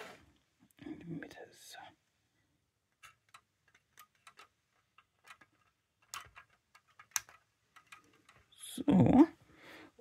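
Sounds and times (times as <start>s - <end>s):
small plastic parts clicking: 2.9s - 8.8s.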